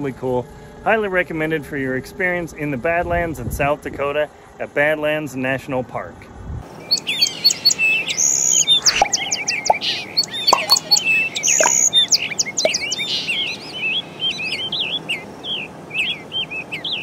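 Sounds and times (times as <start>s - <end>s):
birds chirping and calling: 6.7s - 17.0s.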